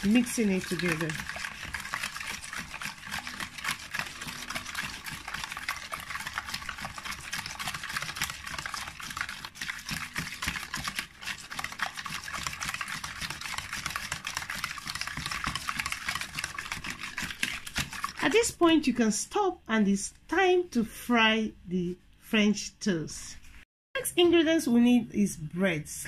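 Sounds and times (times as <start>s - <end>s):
whisk beating in plastic bowl: 0.0s - 18.9s.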